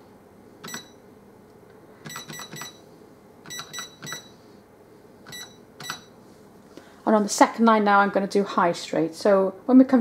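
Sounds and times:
cash register beeping: 0:00.6 - 0:01.0, 0:02.0 - 0:04.4, 0:05.3 - 0:06.2.

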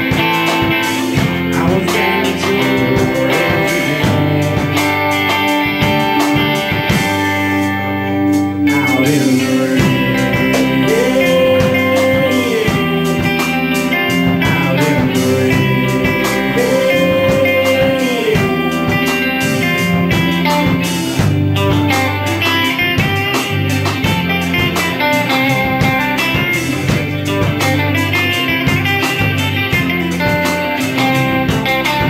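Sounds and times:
electric guitar note bending: 0:00.0 - 0:32.0
rock band playing live: 0:00.0 - 0:32.0.

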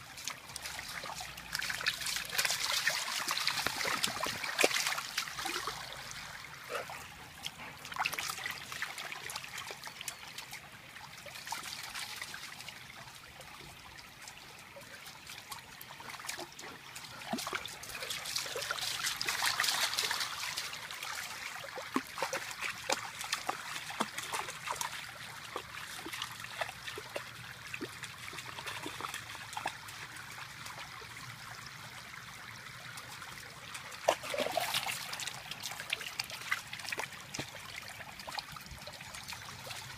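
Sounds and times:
stream running over rocks: 0:00.0 - 0:39.9
dog splashing in water: 0:01.0 - 0:05.9, 0:21.7 - 0:25.0, 0:34.0 - 0:37.6.

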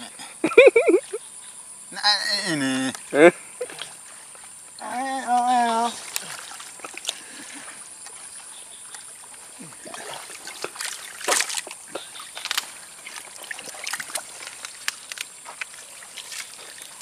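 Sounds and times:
hands splashing in water: 0:09.8 - 0:17.0.

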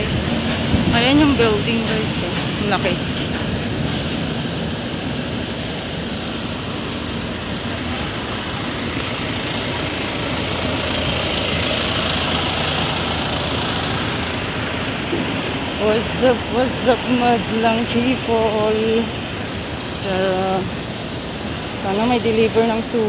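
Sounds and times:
traffic and engine noise: 0:00.0 - 0:23.0
high-pitched squeak: 0:08.7 - 0:10.4.

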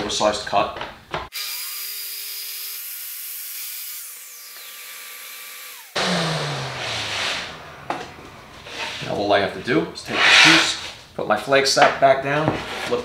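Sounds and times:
saw blade winding down: 0:01.3 - 0:09.0
panel scraping across table: 0:06.7 - 0:09.2.

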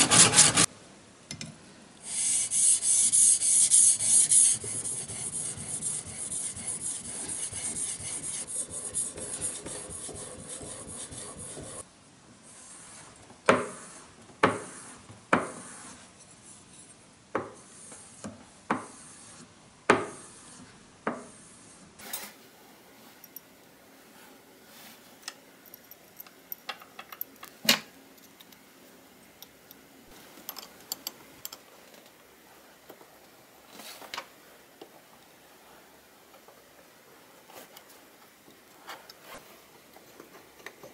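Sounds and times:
iron stropping strokes: 0:02.1 - 0:11.8.

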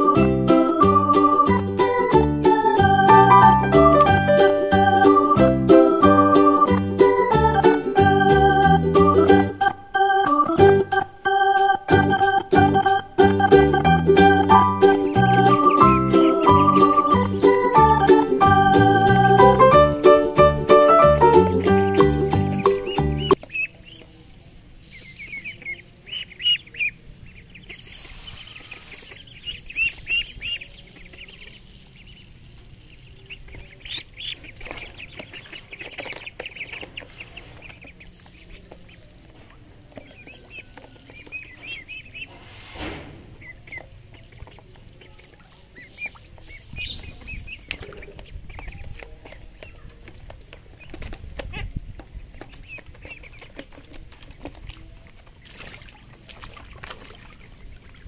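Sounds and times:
ducklings peeping: 0:00.0 - 0:42.5, 0:43.1 - 0:58.0
splashing in shallow water: 0:52.5 - 0:58.0.

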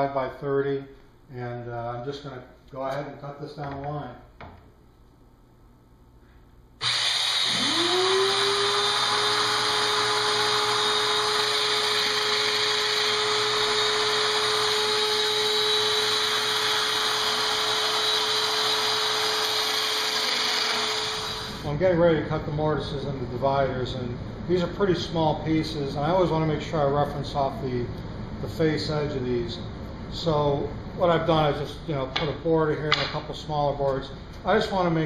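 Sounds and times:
power joiner motor running: 0:06.8 - 0:21.6.

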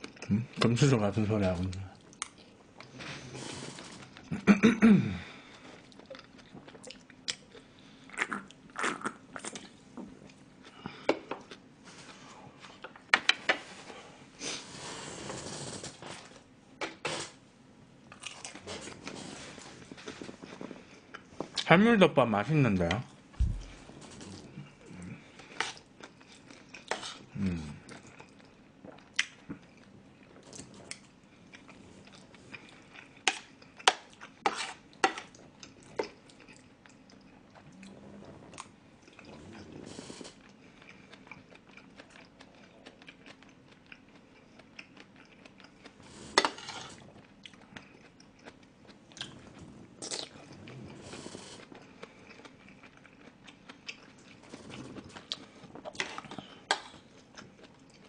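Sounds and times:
close chewing: 0:23.4 - 0:58.0.

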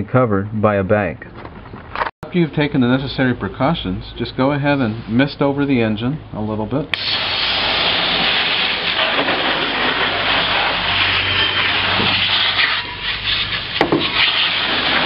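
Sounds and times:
hose nozzle spraying water: 0:07.0 - 0:15.0.

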